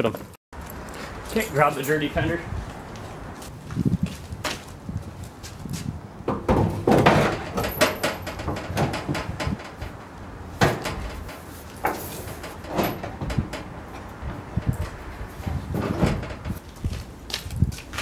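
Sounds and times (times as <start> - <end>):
sheet metal clunks: 6.3 - 16.6.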